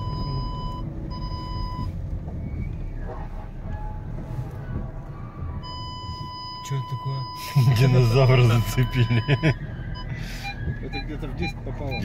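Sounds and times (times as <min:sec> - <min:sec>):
high warning beep in car: 0:00.0 - 0:02.0, 0:05.6 - 0:12.0
car low running noise: 0:00.0 - 0:12.0.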